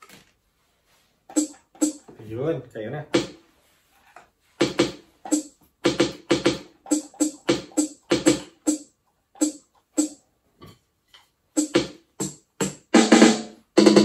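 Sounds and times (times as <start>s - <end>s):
electronic drum hits: 1.3s - 2.1s, 3.1s - 3.4s, 4.6s - 10.2s, 11.6s - 14.0s.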